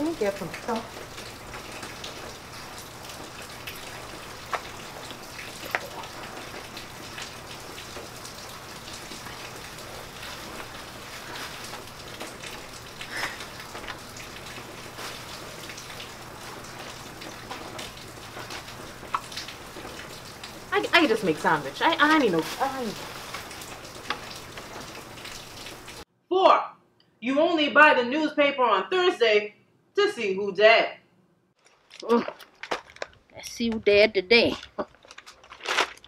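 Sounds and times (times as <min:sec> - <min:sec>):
steady rain hiss: 0:00.0 - 0:26.1.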